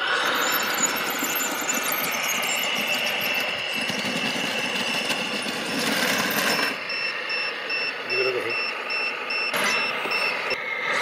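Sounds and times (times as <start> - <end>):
toy crawler loader rattling: 0.0 - 7.0
steady high tone: 0.0 - 11.0
electronic beeping: 0.1 - 10.6.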